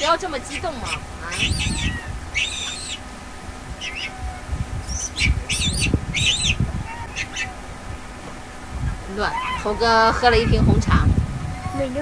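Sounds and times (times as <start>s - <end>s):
macaques squealing: 0.0s - 3.1s, 3.7s - 7.8s, 8.9s - 10.8s
low rumble: 0.0s - 12.0s.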